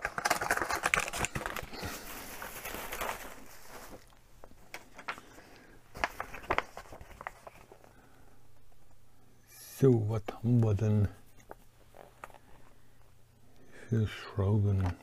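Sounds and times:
small clicks and rustling: 2.5 - 7.9.

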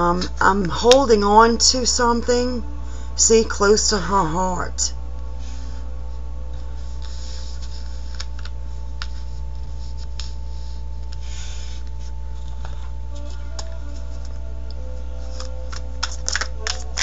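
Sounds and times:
low hum: 0.0 - 17.0
fingernails clicking on cards: 15.3 - 17.0.

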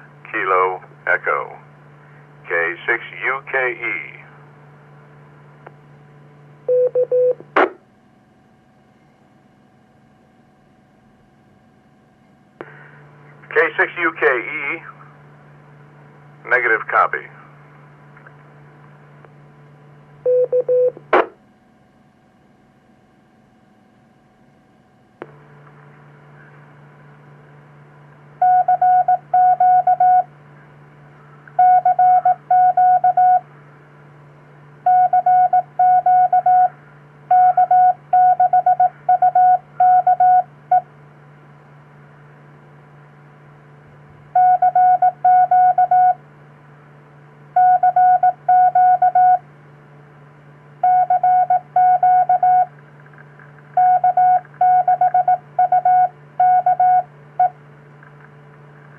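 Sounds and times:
steady low hum: 0.0 - 58.9
morse code tone: 6.7 - 7.4, 20.3 - 21.0, 28.4 - 30.3, 31.6 - 33.4, 34.9 - 36.7, 37.3 - 40.8, 44.4 - 46.2, 47.6 - 49.4, 50.8 - 52.7, 53.8 - 57.6.

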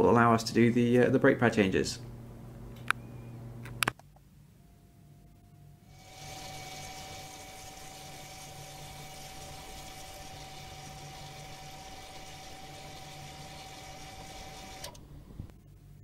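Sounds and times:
brake caliper motor whining: 5.9 - 15.4.

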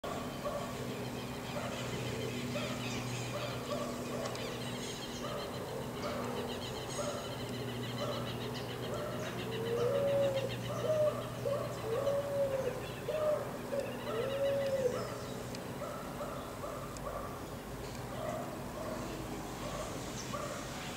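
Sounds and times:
steady low hum: 0.0 - 20.9
small birds chirping: 0.1 - 20.9
pigeon cooing: 8.9 - 15.2.

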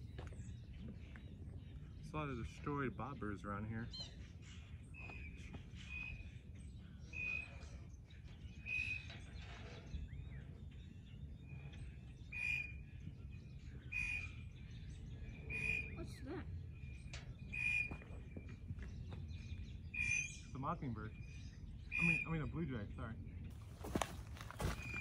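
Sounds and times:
blue jay calling: 12.3 - 12.8, 13.8 - 14.8, 19.8 - 20.6.

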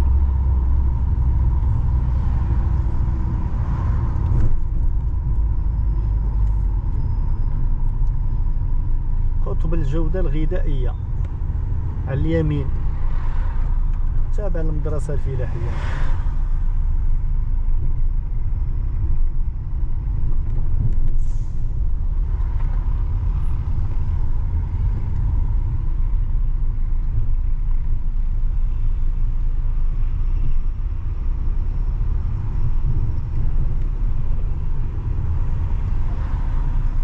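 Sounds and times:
car engine and tyre rumble: 0.0 - 37.0.

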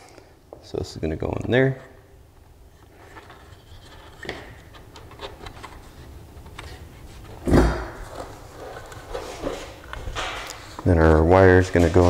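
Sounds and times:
scratching and rubbing: 2.8 - 7.4.

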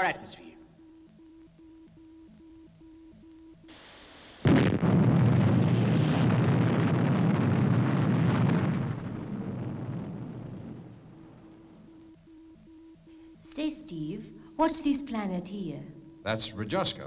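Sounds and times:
electronic beeping: 0.0 - 3.8
rocket launch roar: 4.4 - 11.7.

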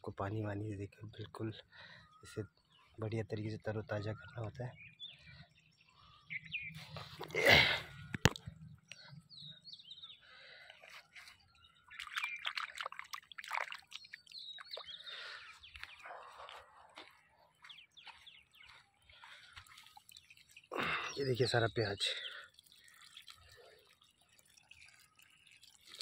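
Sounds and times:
birds chirping: 0.0 - 26.0
water trickling and dripping: 11.6 - 17.2, 18.0 - 26.0.

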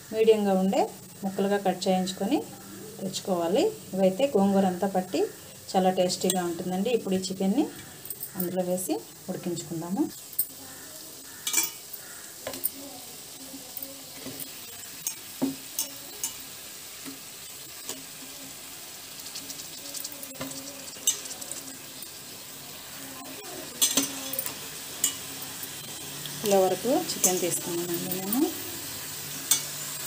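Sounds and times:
chicken sizzling in a pan: 0.0 - 30.0
spatula scraping a metal pan: 11.2 - 12.6, 19.2 - 22.0.

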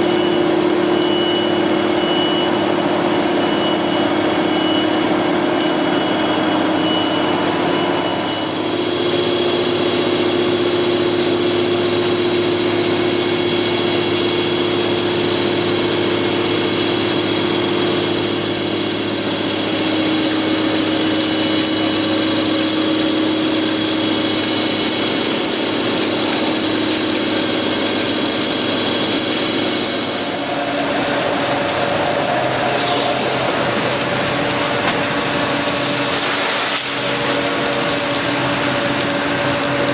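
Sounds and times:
milling machine hum: 0.0 - 39.9
coolant spray hiss: 8.6 - 39.9.

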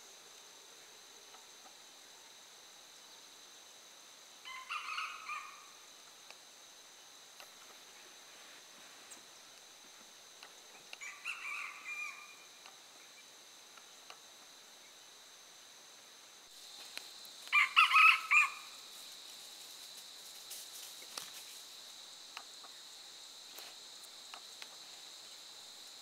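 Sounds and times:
insects droning: 0.0 - 26.0
rooster crowing: 4.4 - 5.8, 11.0 - 12.6, 17.4 - 18.8.

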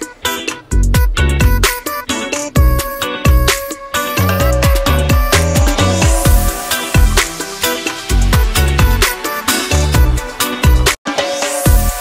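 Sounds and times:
sustained pitched tones: 4.2 - 8.4
sliding deep bass notes: 4.2 - 9.0.

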